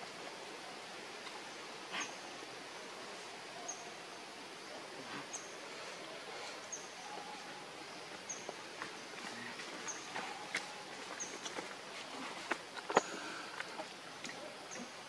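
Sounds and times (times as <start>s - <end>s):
steady hiss: 0.0s - 15.0s
faint rustles: 8.1s - 14.9s.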